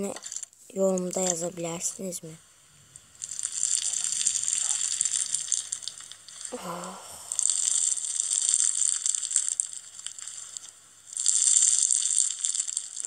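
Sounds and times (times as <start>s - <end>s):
foam bead slime crackling: 0.0s - 13.0s
person exclaiming: 6.5s - 7.5s.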